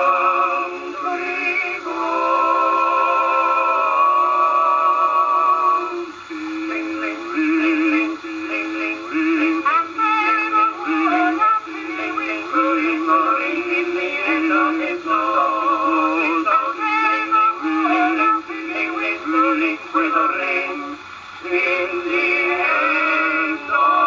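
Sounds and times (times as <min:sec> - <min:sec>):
male vocal quartet singing: 0:00.0 - 0:24.0.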